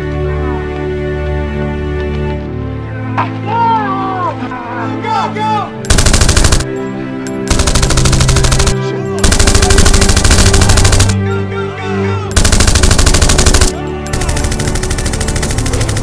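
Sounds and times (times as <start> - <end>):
automatic rifle fire bursts: 5.9 - 11.4, 12.3 - 16.0.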